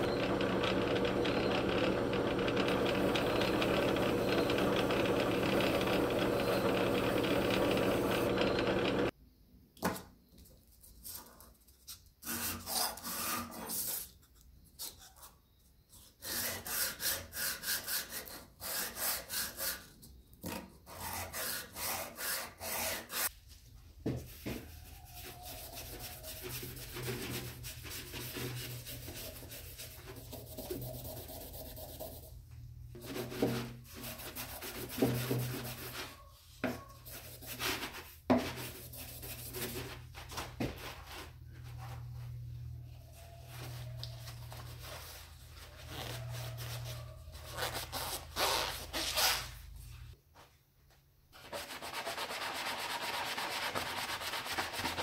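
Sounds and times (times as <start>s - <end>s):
blade rasping on sandpaper: 16.0s - 20.0s, 20.9s - 23.3s, 24.8s - 32.3s, 33.0s - 36.3s.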